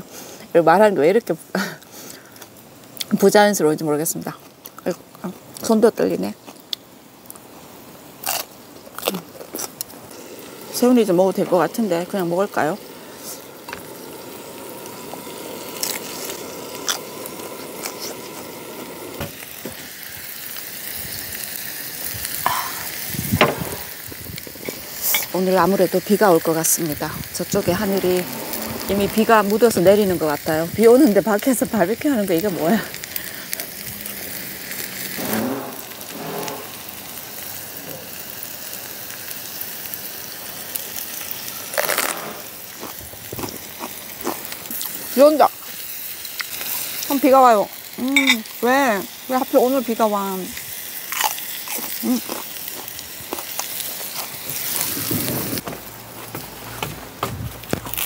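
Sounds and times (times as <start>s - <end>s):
food sizzling on grill pan: 7.4s - 56.7s
construction noise: 27.5s - 29.9s, 33.6s - 37.1s.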